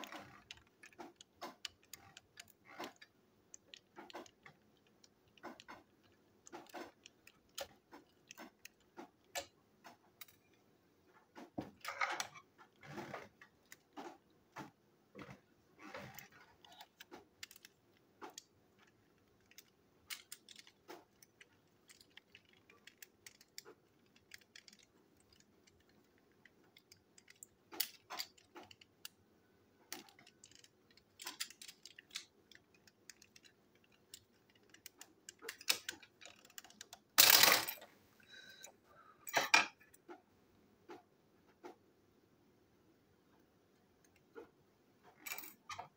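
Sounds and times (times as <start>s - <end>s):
clicks of plastic parts and screws: 0.0s - 10.6s, 16.0s - 29.2s, 29.9s - 37.9s
plastic parts clattering: 0.0s - 10.6s, 11.3s - 29.2s, 29.9s - 37.9s.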